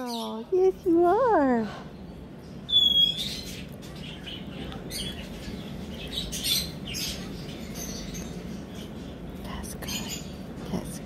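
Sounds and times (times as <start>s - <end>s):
cockatoo squeak: 2.7s - 3.4s.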